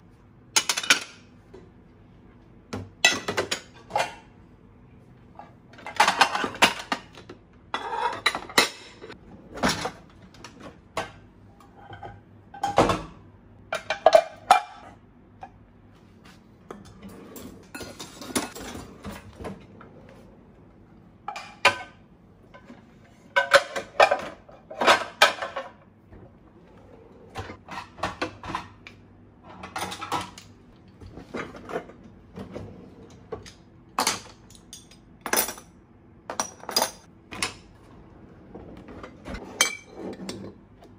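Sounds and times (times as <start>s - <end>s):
kitchen utensils rattling: 5.8s - 7.2s, 16.9s - 19.7s, 23.3s - 25.8s, 29.5s - 30.5s, 36.3s - 37.6s, 38.6s - 40.6s.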